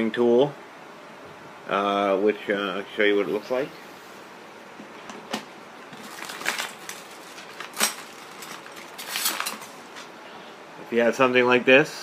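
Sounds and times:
rustling of handled items: 0:04.8 - 0:10.2.

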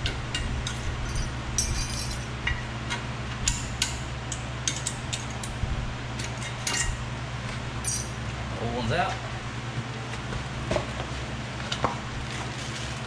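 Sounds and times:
hand tool clinking and scraping metal: 0:00.6 - 0:02.3, 0:07.8 - 0:08.2.

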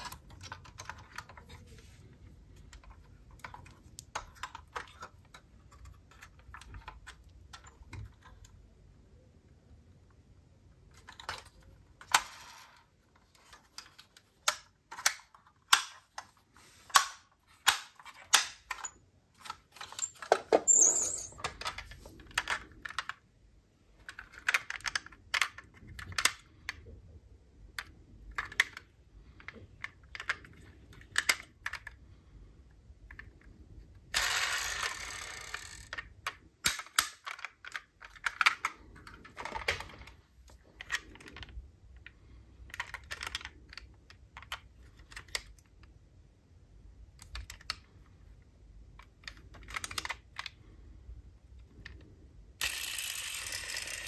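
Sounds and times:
toy cars clicking and clinking: 0:34.1 - 0:38.8, 0:52.6 - 0:54.0.

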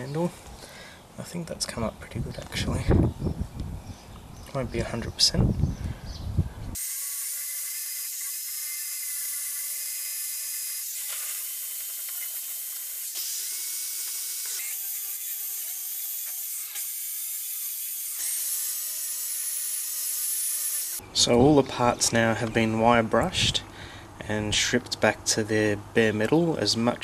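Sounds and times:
drill motor whine: 0:06.8 - 0:21.0.

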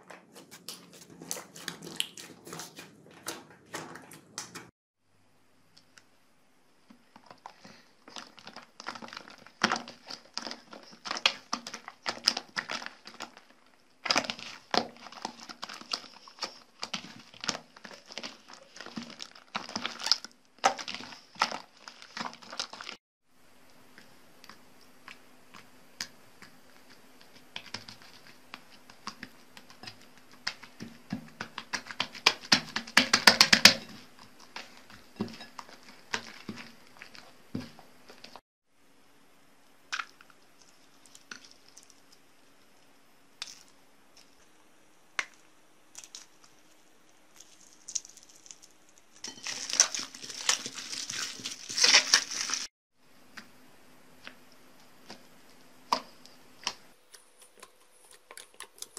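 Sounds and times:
slime squelching and popping: 0:00.2 - 0:04.7, 0:07.0 - 0:23.0.

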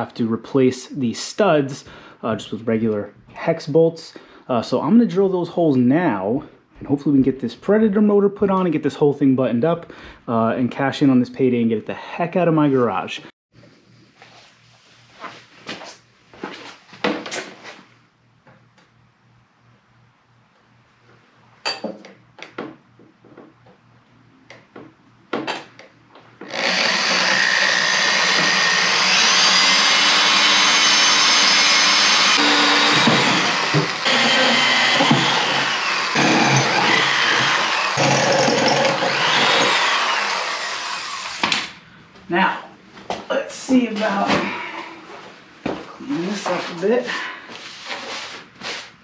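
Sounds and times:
electric drill boring through steel: 0:26.4 - 0:41.7.

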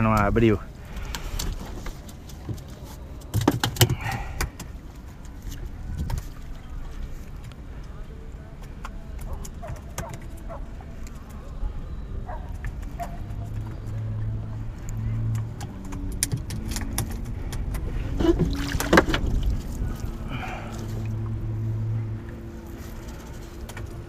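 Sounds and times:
low hum: 0:03.9 - 0:24.0
water pouring off net: 0:18.4 - 0:21.0.

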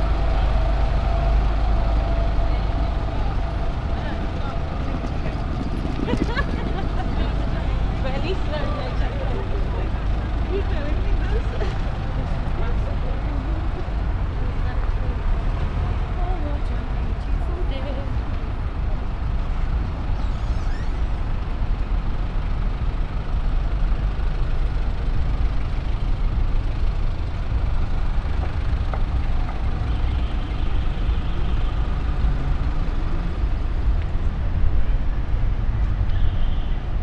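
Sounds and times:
traffic rumble: 0:00.0 - 0:37.0
faint high squeal: 0:20.1 - 0:21.2.

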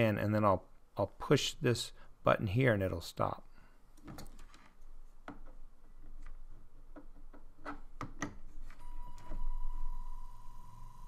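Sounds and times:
small motor fan whine: 0:08.8 - 0:11.0.

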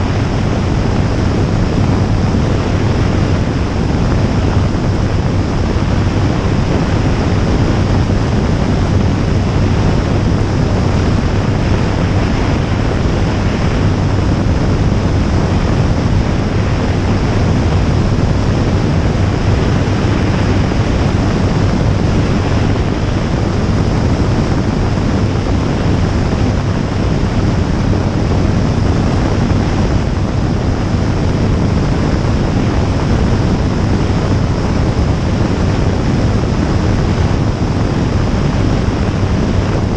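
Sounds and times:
aircraft engine and propeller drone: 0:00.0 - 0:39.9
constant low hum: 0:00.0 - 0:39.9
wind rushing over microphone: 0:00.0 - 0:39.9.

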